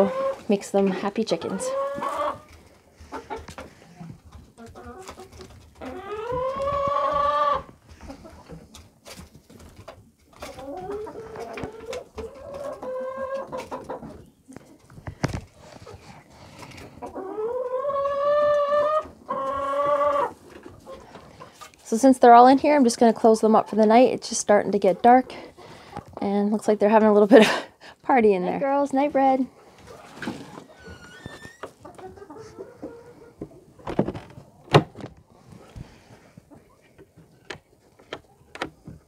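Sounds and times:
hens clucking and calling: 0.0s - 9.2s, 9.8s - 15.0s, 15.8s - 21.8s, 29.6s - 34.7s.

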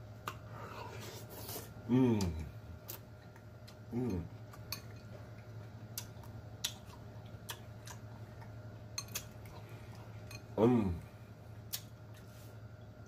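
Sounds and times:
person chewing food: 0.2s - 12.6s
person humming: 1.8s - 2.6s, 3.9s - 4.3s, 10.6s - 11.1s.

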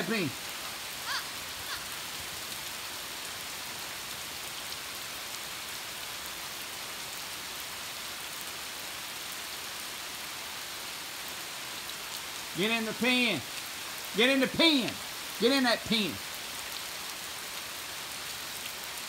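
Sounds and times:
steady rain hiss: 0.0s - 19.0s
raindrop ticks: 12.6s - 15.1s.

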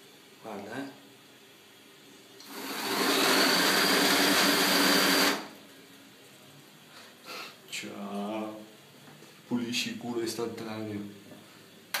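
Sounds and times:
electric motor running: 2.4s - 5.5s.

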